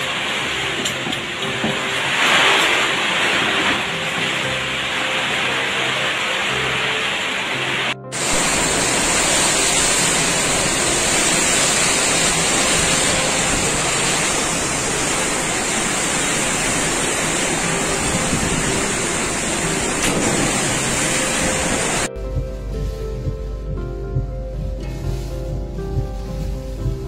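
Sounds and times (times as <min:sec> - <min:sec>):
heavy rain lashing trees: 0:00.0 - 0:22.1
strong wind: 0:08.2 - 0:22.1.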